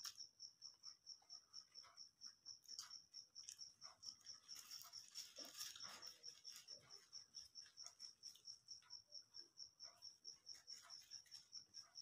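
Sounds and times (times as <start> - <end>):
cricket chirping: 0.0 - 12.0
paper wrapper rustling: 4.5 - 6.7.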